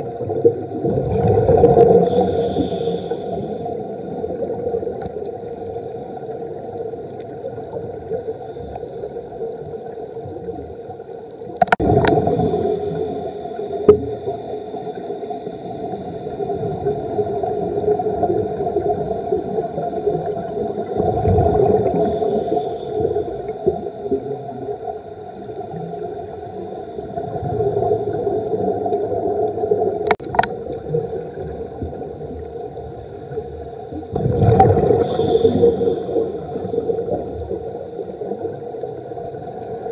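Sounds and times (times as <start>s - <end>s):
regulator bubbles surging: 0.0s - 2.7s, 11.6s - 14.4s, 16.4s - 22.4s, 34.1s - 38.6s
muffled underwater gurgling: 0.0s - 8.6s, 11.5s - 39.9s.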